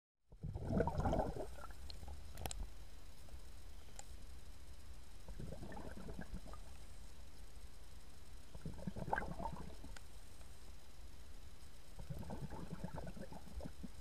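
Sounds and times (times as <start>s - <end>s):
air bubbling from diving regulator: 0.3s - 1.8s, 5.3s - 6.7s, 8.5s - 9.9s, 12.0s - 14.0s.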